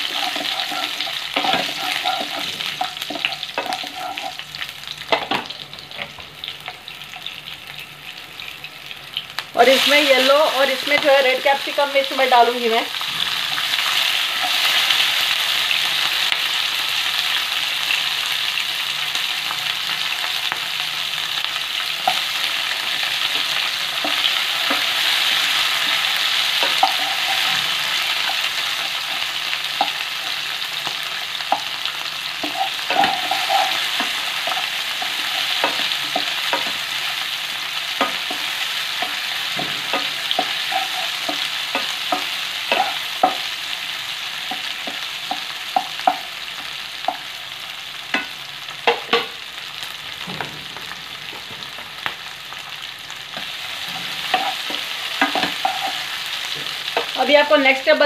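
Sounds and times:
vegetables sizzling in oil: 0.0 - 58.0
wooden spatula knocking pan: 25.8 - 28.4.

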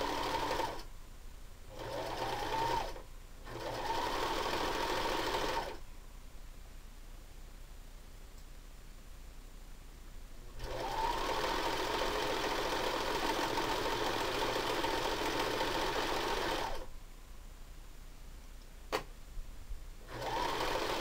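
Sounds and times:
electric sewing machine running: 0.0 - 0.8, 1.8 - 5.8, 10.6 - 16.9, 20.1 - 21.0.

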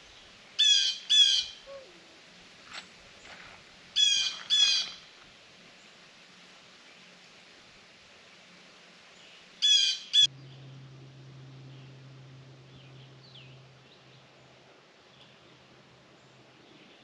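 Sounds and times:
low steady hum: 0.0 - 17.0
bird calling loudly: 0.6 - 2.0, 4.0 - 5.0, 9.6 - 10.3.

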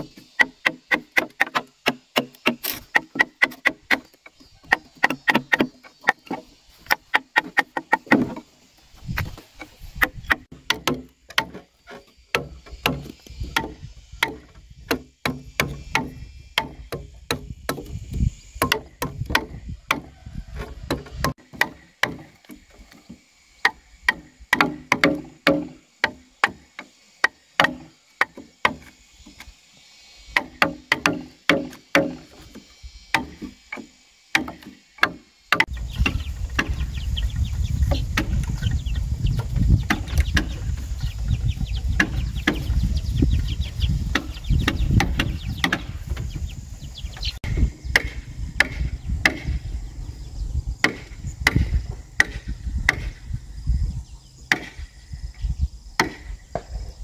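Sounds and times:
chopping strikes into wood: 0.0 - 8.4, 9.1 - 11.6, 12.3 - 18.0, 18.6 - 20.1, 20.9 - 22.6, 23.6 - 28.9, 30.4 - 36.8, 39.8 - 40.6, 42.0 - 42.8, 44.1 - 46.2, 47.9 - 49.6, 50.8 - 53.2, 54.5 - 54.9, 56.0 - 56.7.

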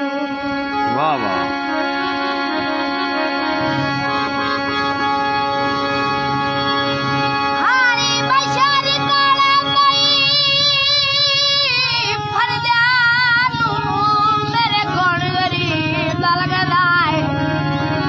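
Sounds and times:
harmonium drone chords: 0.0 - 18.0
boy singing: 7.6 - 17.6.

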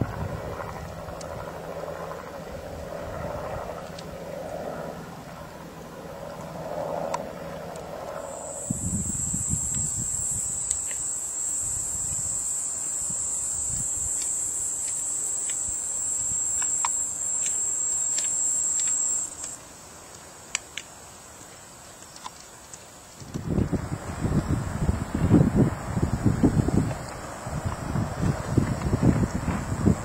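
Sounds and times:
faint wind noise: 0.0 - 30.0
high-pitched insect trill: 8.1 - 19.6.

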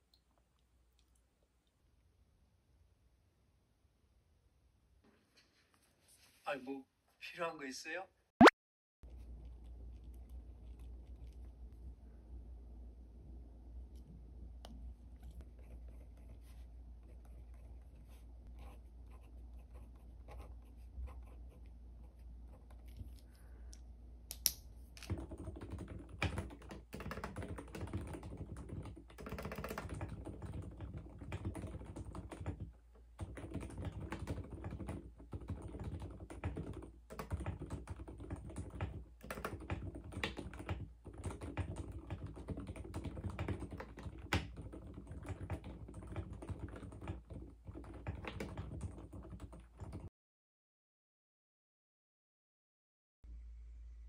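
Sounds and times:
pen scratching on paper: 15.4 - 22.9
typing on mechanical keyboard: 25.1 - 50.1.

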